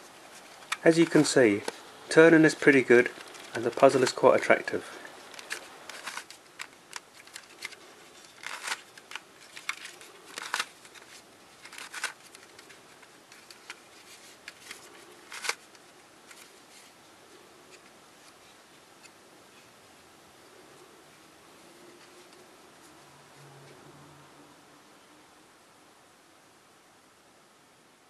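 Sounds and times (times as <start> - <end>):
twisty puzzle plastic clicks: 5.2 - 13.8, 14.4 - 16.5.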